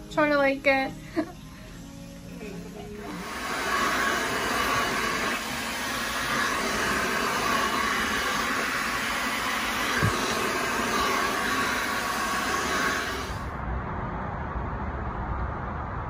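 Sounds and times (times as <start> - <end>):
hair dryer blowing: 2.8 - 13.6.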